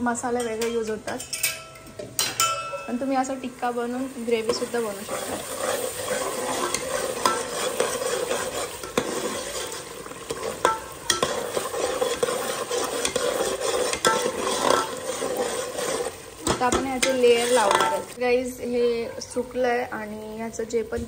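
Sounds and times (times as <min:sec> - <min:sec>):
gravy sizzling in oil: 0:02.4 - 0:21.0
ladle scraping a pot: 0:04.4 - 0:18.2.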